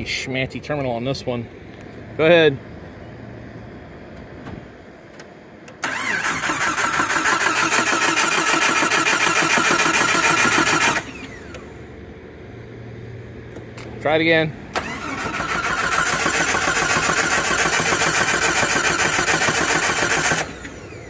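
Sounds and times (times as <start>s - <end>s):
starter cranking engine: 5.8s - 11.7s, 14.7s - 21.0s.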